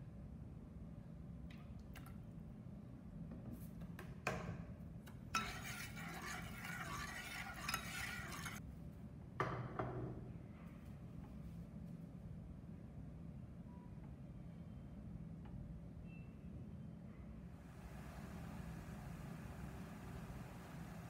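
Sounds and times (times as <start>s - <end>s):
stirring broth: 5.4s - 8.6s.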